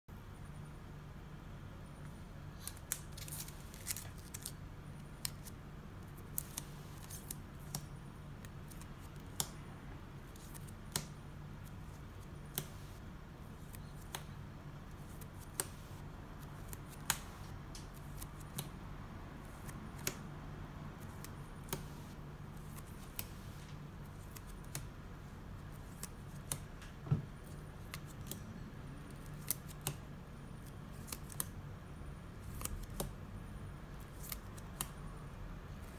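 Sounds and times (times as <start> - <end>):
low steady hum: 0.1 - 35.9
sleeved cards clicking: 2.6 - 4.6, 5.2 - 9.6, 10.3 - 11.8, 12.4 - 12.9, 13.6 - 14.3, 14.9 - 18.7, 19.5 - 20.2, 21.0 - 23.6, 25.7 - 26.8, 29.1 - 30.0, 30.9 - 31.6, 32.4 - 33.2, 34.1 - 35.0.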